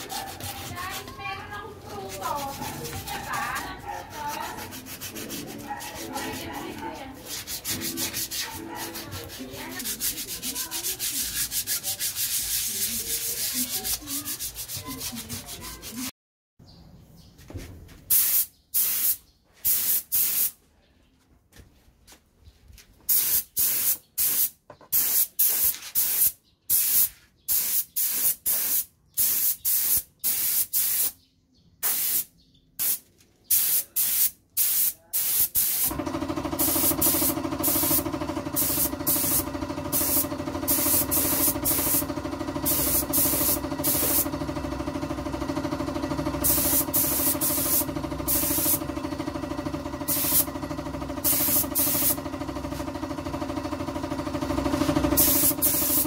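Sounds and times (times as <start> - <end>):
spray gun hissing: 31.8 - 36.0, 36.6 - 44.3, 46.4 - 48.8, 50.1 - 50.5, 51.2 - 52.2, 55.1 - 56.0
air compressor motor running: 35.8 - 56.0.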